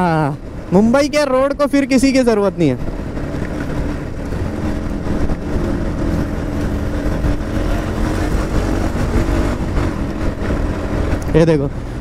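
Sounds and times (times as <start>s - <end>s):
wind rumble on microphone: 0.0s - 12.0s
motorcycle engine running: 2.8s - 12.0s.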